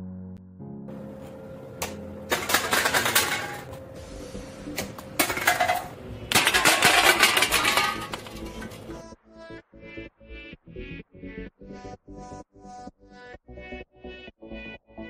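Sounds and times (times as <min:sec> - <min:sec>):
cans clattering on tiled floor: 0:02.3 - 0:03.7, 0:05.1 - 0:08.9.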